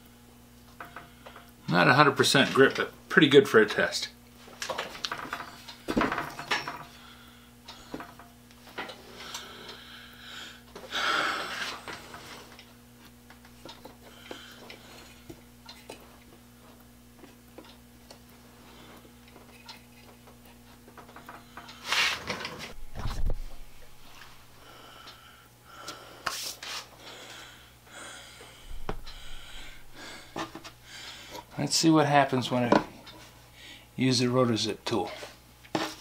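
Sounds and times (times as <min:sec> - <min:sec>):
steady low hum: 0:00.0 - 0:36.0
loud scrape: 0:21.8 - 0:22.4.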